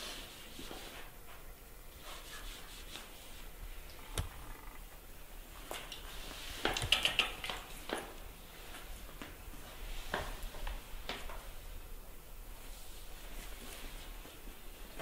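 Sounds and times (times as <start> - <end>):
soft rubbing and scratching: 0.0 - 4.8
sharp clicks: 3.9 - 4.8.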